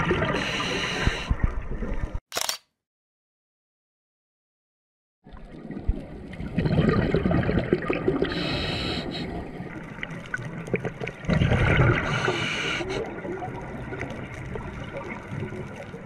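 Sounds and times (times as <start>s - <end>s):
gurgle of exhaled bubbles: 5.3s - 16.0s.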